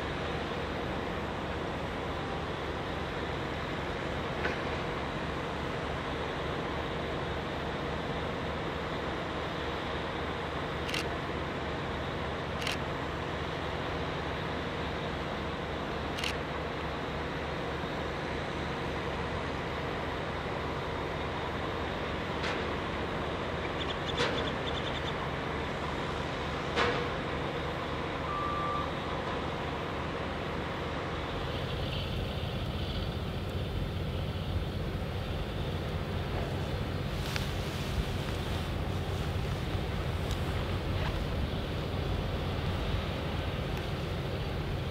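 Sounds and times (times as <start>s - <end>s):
diesel engine throbbing: 17.0s - 44.9s
short beep: 28.2s - 29.0s.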